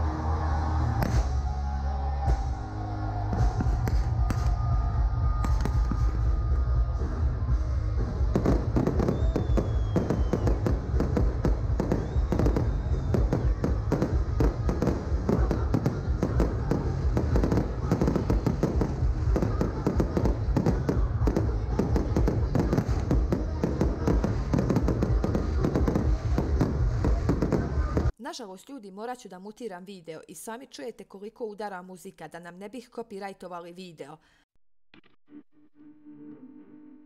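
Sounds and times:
loud music: 0.0 - 28.1
fireworks bangs and crackles: 0.9 - 1.5, 3.2 - 28.1.

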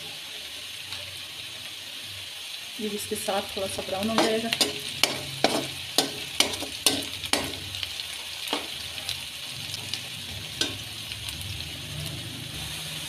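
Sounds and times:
onions sizzling in hot oil: 0.0 - 13.0
metal spoon scraping pot: 4.1 - 7.7.

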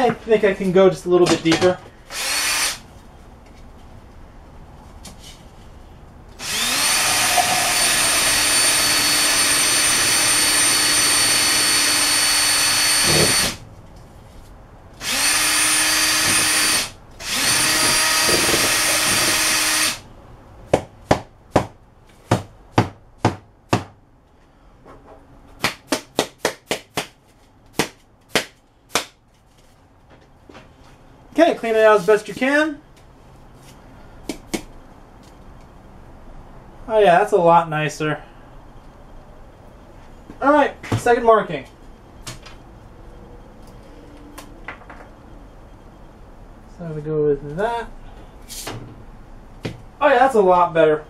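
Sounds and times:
electric drill boring: 2.1 - 2.8, 6.4 - 13.6, 15.0 - 20.0.

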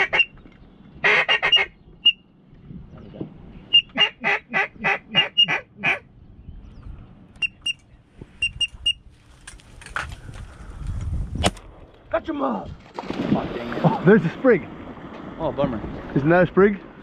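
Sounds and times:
duck quacking loudly: 0.0 - 0.3, 1.0 - 1.7, 3.8 - 6.0
short high chirps: 7.4 - 7.8, 8.4 - 9.0.

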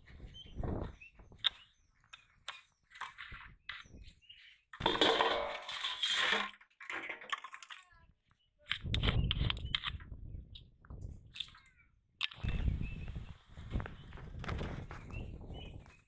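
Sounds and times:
bottles knocking on steel basin: 4.8 - 6.4
plastic bottles crinkling: 4.8 - 7.9.

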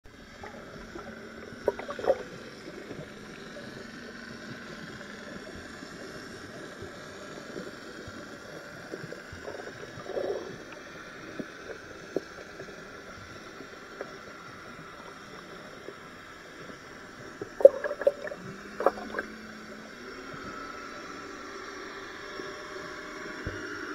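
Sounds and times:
underwater hiss of water: 5.4 - 19.3.

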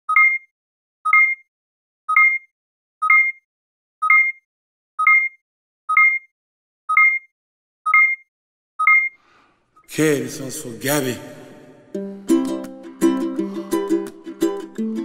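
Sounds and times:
electronic countdown beeps: 0.1 - 0.5, 1.1 - 1.5, 2.1 - 3.4, 4.0 - 4.4, 5.0 - 6.3, 6.9 - 7.3, 7.9 - 9.2.

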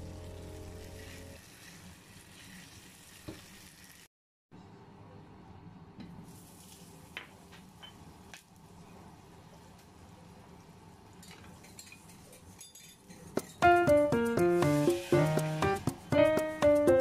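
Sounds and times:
meat sizzling in a frying pan: 0.0 - 4.1, 14.4 - 15.9
background music: 13.6 - 17.0.

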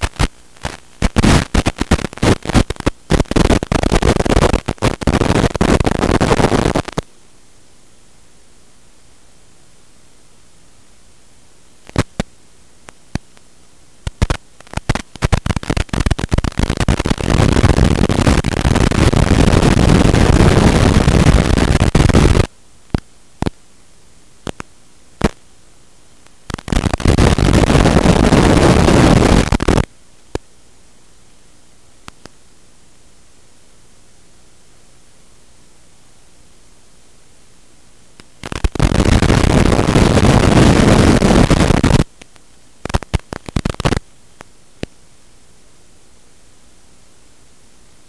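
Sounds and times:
harsh crackling static: 0.0 - 48.0
steady hiss: 0.0 - 48.0
sharp clicks: 11.8 - 19.2, 41.4 - 44.9.

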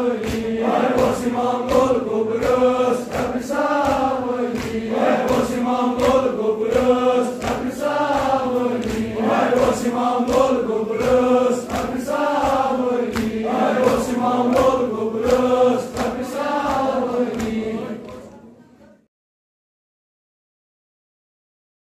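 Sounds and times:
men chanting in unison: 0.0 - 18.3
sharp beats: 0.1 - 17.6.

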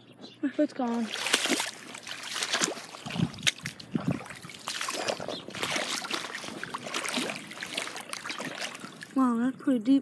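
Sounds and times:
footsteps splashing through mud: 0.8 - 9.2
dull low thuds: 2.4 - 8.8.

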